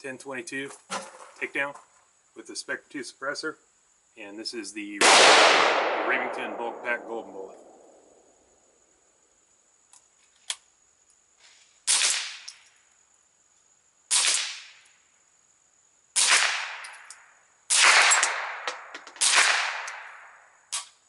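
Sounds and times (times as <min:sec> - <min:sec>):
suppressed rifle shots: 0:05.0 - 0:08.1, 0:11.9 - 0:12.5, 0:14.1 - 0:14.7, 0:17.7 - 0:20.8
supersonic bullet crack: 0:05.0 - 0:08.2, 0:11.9 - 0:12.5, 0:14.1 - 0:14.8, 0:16.2 - 0:17.1, 0:17.7 - 0:20.4.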